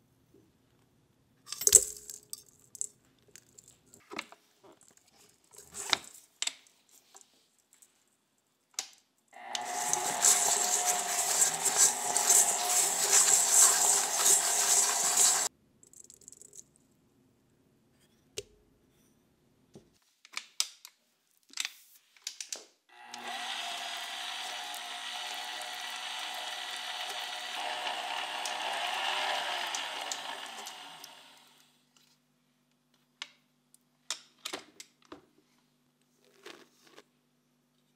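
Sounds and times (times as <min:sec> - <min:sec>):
stand mixer motor whining: 0:09.4 - 0:15.5, 0:22.9 - 0:31.6.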